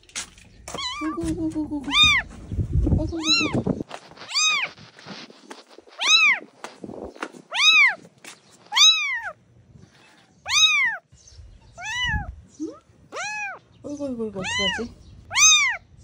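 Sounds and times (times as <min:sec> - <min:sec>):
kitten mewing: 0:00.8 - 0:02.3, 0:03.2 - 0:03.6, 0:04.3 - 0:04.8, 0:06.0 - 0:06.5, 0:07.5 - 0:08.0, 0:08.7 - 0:09.4, 0:10.5 - 0:11.0, 0:11.8 - 0:13.6, 0:14.4 - 0:15.9.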